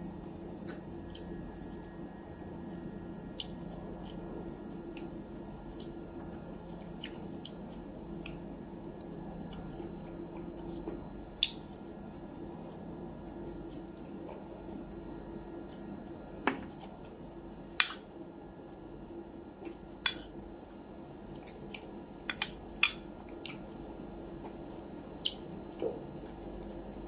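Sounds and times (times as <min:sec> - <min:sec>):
fork clicking on a plate: 0:21.7 - 0:23.6.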